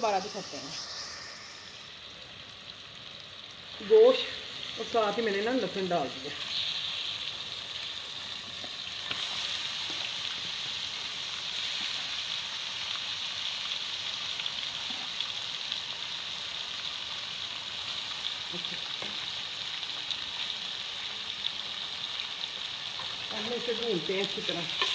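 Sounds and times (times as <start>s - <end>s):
meat sizzling in hot oil: 0.0s - 24.9s
crackles and pops: 6.5s - 10.5s.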